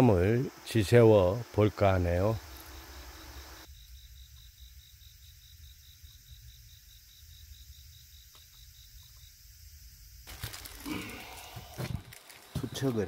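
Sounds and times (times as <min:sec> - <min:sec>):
insect chirping: 0:00.0 - 0:13.0
rustling: 0:10.3 - 0:13.0.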